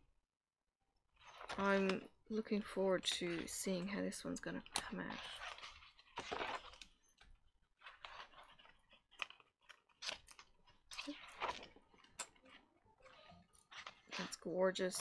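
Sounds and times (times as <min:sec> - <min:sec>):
paper pages rustling: 0:04.6 - 0:15.0.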